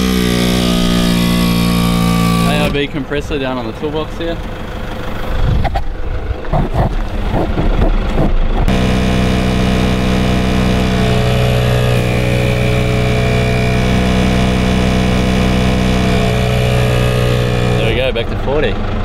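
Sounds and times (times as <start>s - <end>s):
air compressor humming: 0.0s - 3.0s, 6.6s - 18.0s.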